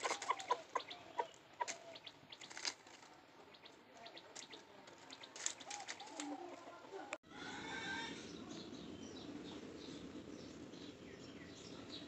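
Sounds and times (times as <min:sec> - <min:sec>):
dry leaves crackling: 0:00.0 - 0:06.8.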